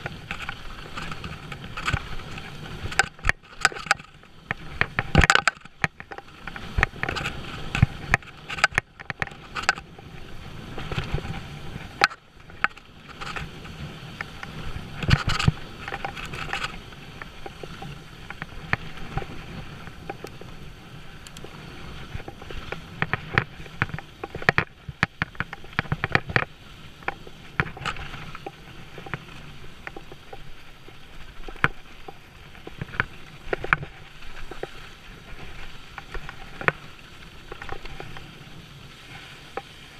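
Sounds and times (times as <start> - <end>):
bike rattling over rocks: 0.0 - 39.9.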